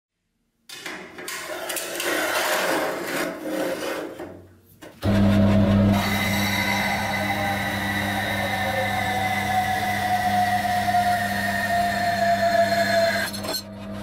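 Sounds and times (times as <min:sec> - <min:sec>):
metal bar scraping on metal: 0:01.2 - 0:04.4
steady machine hum: 0:05.0 - 0:14.0.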